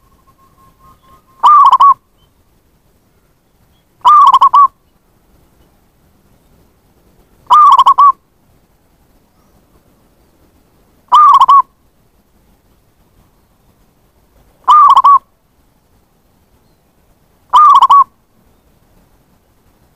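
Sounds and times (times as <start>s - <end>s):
dove cooing: 0.0s - 2.0s, 4.0s - 4.7s, 7.5s - 8.2s, 11.1s - 11.7s, 14.6s - 15.2s, 17.5s - 18.1s.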